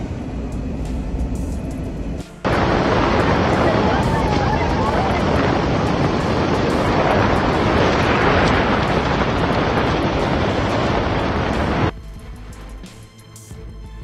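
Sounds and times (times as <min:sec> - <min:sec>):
strong wind on microphone: 0:02.4 - 0:11.9.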